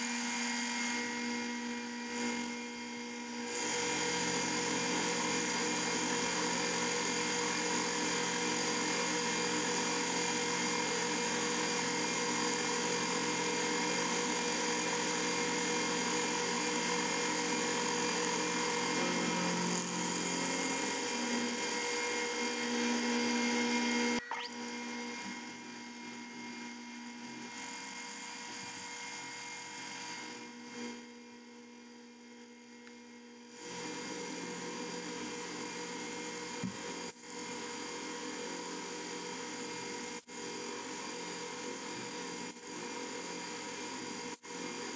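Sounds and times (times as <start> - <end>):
milling machine whining: 0.0 - 30.8.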